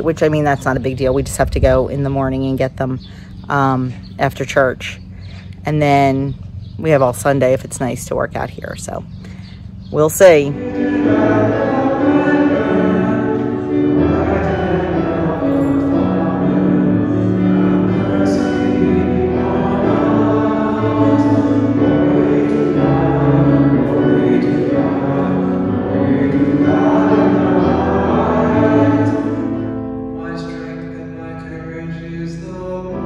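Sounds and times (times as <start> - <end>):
sustained accompanying chords: 0.0 - 33.0
congregation singing a hymn: 10.0 - 33.0.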